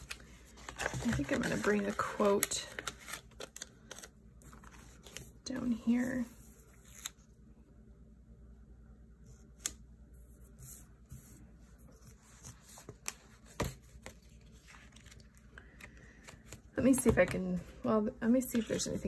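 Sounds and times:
paper sticker sheets rustling: 0:00.0 - 0:07.2, 0:18.4 - 0:19.0.

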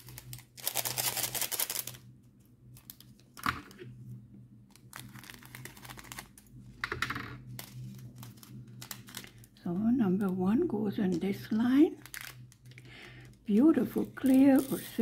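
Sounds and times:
plastic bags crinkling: 0:00.0 - 0:02.1, 0:04.8 - 0:06.6, 0:07.5 - 0:09.6, 0:11.1 - 0:15.0.

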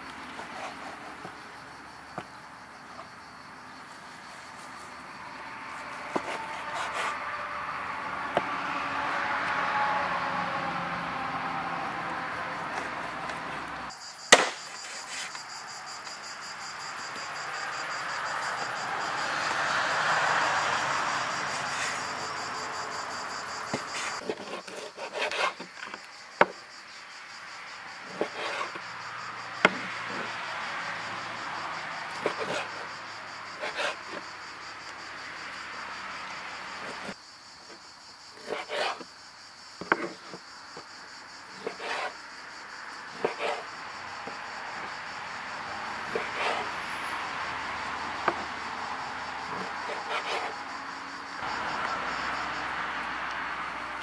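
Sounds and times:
insects chirring: 0:00.0 - 0:54.0
knife chopping on wooden board: 0:14.3 - 0:14.6, 0:41.6 - 0:42.1.

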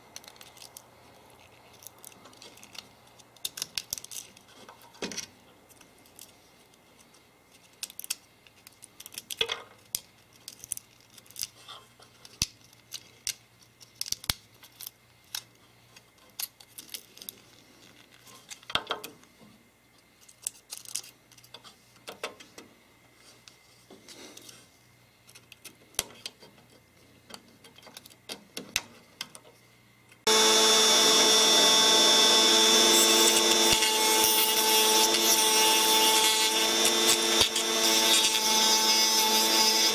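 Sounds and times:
hand tool scraping walnut shell: 0:30.3 - 0:39.9
rotary tool whining: 0:30.3 - 0:39.9.

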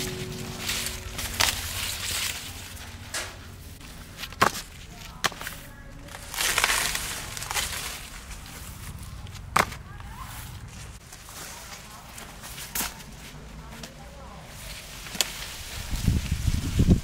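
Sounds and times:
corn cracking: 0:00.0 - 0:09.9
rustling corn stalks and husks: 0:00.0 - 0:17.0.

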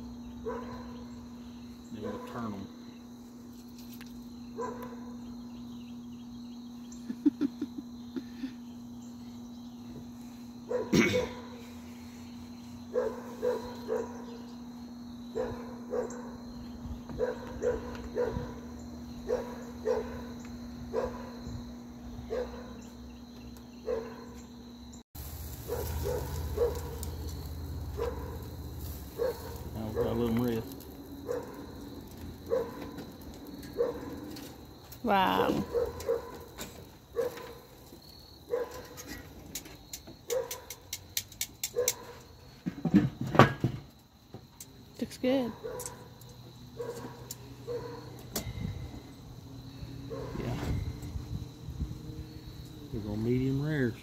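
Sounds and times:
crickets chirring: 0:00.0 - 0:54.0
dog barking: 0:00.4 - 0:01.1, 0:02.0 - 0:02.5, 0:04.6 - 0:05.2, 0:10.7 - 0:11.6, 0:12.9 - 0:14.4, 0:15.3 - 0:16.4, 0:17.2 - 0:21.4, 0:22.2 - 0:22.8, 0:23.8 - 0:24.4, 0:25.6 - 0:27.2, 0:27.9 - 0:28.5, 0:29.1 - 0:31.8, 0:32.4 - 0:33.0, 0:33.7 - 0:34.3, 0:35.4 - 0:36.5, 0:37.2 - 0:37.7, 0:38.5 - 0:39.1, 0:40.3 - 0:40.8, 0:41.7 - 0:42.2, 0:45.5 - 0:46.2, 0:46.8 - 0:48.2, 0:50.1 - 0:50.6.

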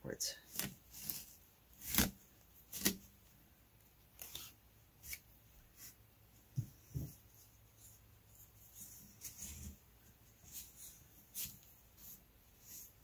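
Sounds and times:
weaving cards scraping and rustling: 0:00.4 - 0:03.2, 0:04.0 - 0:06.0, 0:07.4 - 0:13.0.

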